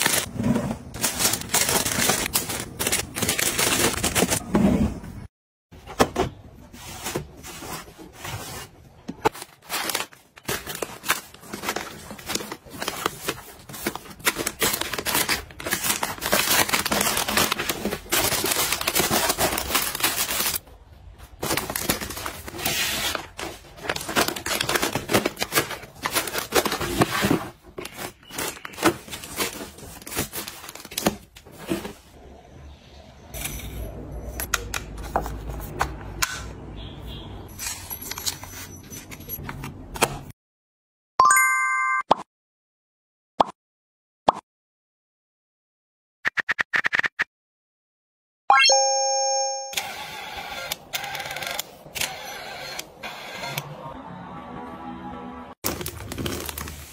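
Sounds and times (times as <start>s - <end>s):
plastic bags rustling: 0.0s - 4.4s, 7.5s - 32.1s, 55.6s - 56.9s.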